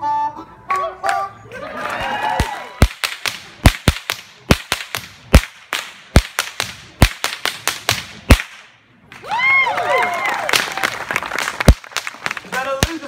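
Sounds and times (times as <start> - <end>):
whip cracking: 2.4 - 9.2, 11.6 - 13.0.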